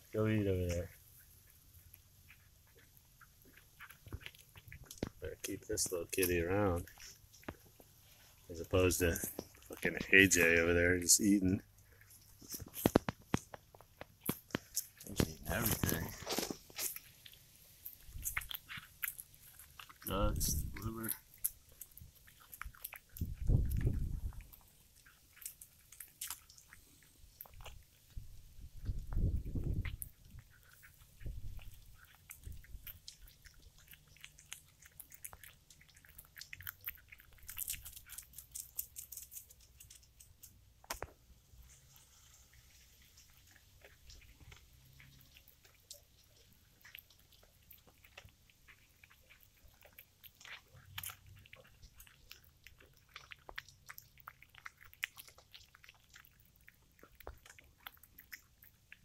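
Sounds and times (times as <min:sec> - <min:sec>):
cat crunching on bone: 0:00.0 - 0:59.0.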